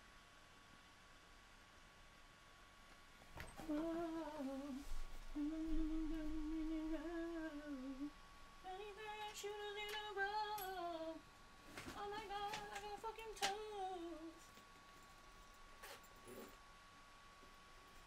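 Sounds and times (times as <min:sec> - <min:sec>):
faint clicks: 0:11.8 - 0:13.7.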